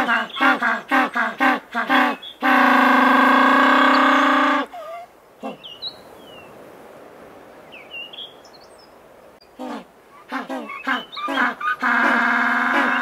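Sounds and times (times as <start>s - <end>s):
penguin honks: 0.0s - 4.8s, 9.6s - 13.0s
long braying call: 0.0s - 5.7s, 9.6s - 13.0s
background noise: 0.0s - 13.0s
penguins calling: 9.6s - 13.0s.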